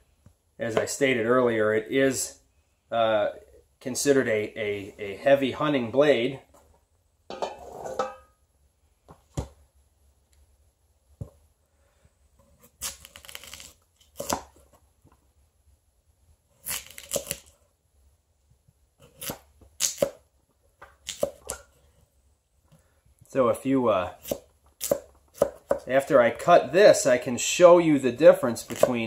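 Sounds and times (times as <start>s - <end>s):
knife slicing potato: 12.4s - 14.6s, 16.6s - 17.5s, 19.0s - 20.2s, 21.0s - 21.8s, 24.1s - 25.9s, 28.6s - 29.0s.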